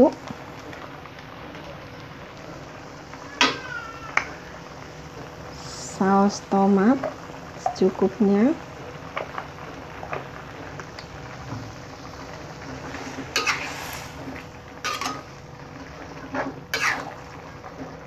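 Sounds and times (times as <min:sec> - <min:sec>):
vegetables sizzling in pan: 0:00.0 - 0:18.0
metal spatula scraping wok: 0:12.7 - 0:15.3, 0:16.3 - 0:17.1.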